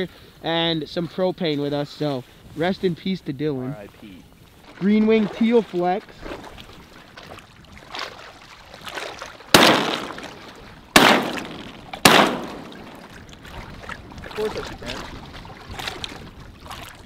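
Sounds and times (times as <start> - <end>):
shotgun shots echoing: 9.5 - 13.1.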